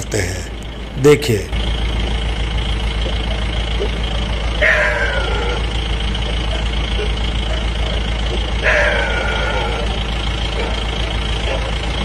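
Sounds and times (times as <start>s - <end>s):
vehicle engine idling: 0.0s - 12.0s
cry falling in pitch: 4.6s - 5.7s, 8.6s - 9.9s.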